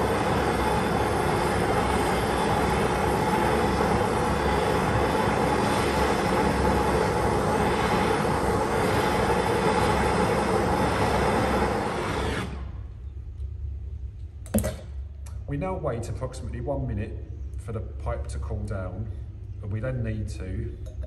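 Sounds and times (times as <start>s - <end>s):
blowtorch flame hissing: 0.0s - 12.9s.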